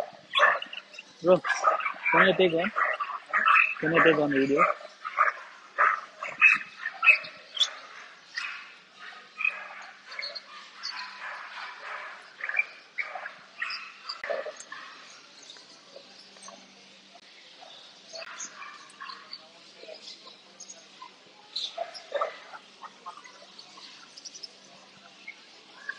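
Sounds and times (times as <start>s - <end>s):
puppies yapping: 0.0s - 15.1s, 21.7s - 23.5s.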